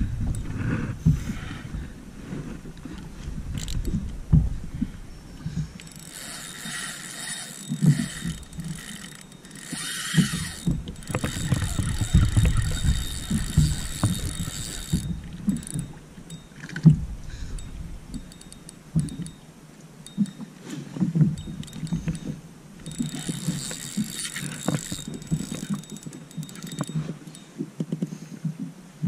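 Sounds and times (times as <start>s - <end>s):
gear clicks: 2.8s - 4.2s, 5.8s - 16.4s, 17.6s - 19.4s, 21.3s - 27.5s.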